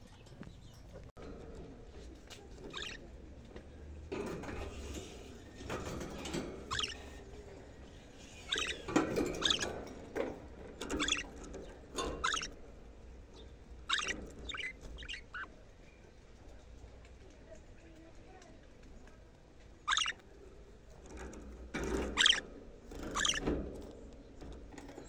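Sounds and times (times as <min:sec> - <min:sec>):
budgerigars chattering: 0:02.7 - 0:03.0, 0:06.7 - 0:07.2, 0:08.4 - 0:09.7, 0:10.9 - 0:11.4, 0:12.1 - 0:12.6, 0:13.4 - 0:15.5, 0:19.9 - 0:20.2, 0:22.2 - 0:22.4, 0:23.2 - 0:23.5.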